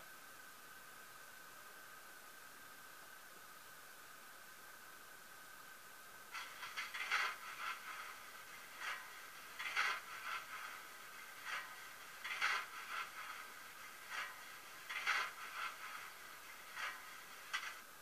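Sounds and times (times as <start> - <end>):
model steam locomotive hissing: 6.3 - 18.0.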